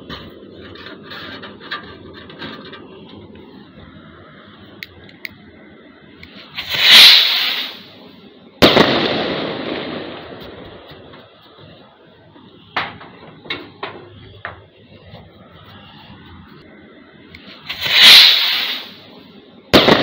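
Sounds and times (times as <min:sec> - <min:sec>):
rocket hissing whoosh: 0:06.3 - 0:10.8, 0:17.4 - 0:19.2.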